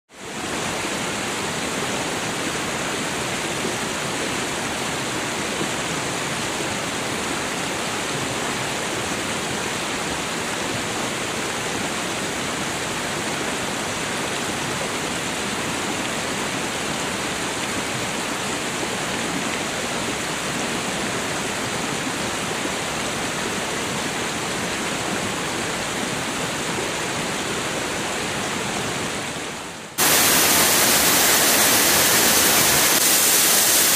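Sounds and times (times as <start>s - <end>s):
waterfall rushing: 0.2s - 33.9s.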